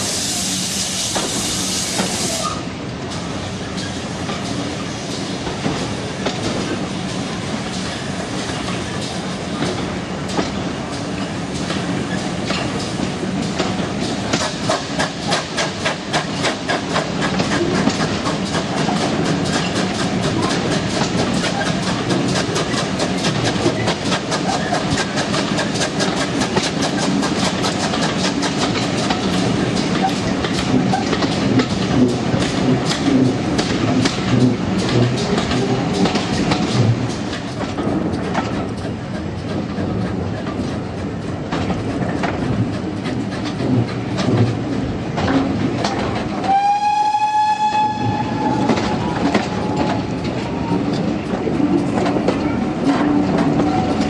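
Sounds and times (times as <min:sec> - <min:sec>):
train coaches rumbling on track: 0:00.0 - 0:54.0.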